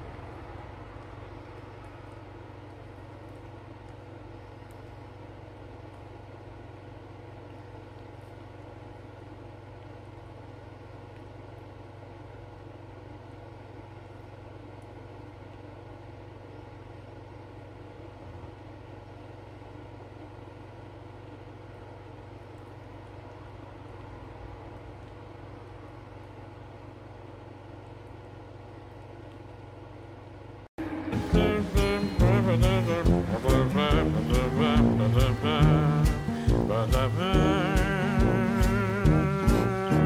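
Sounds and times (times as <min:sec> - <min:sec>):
motor humming: 0:30.8 - 0:40.0.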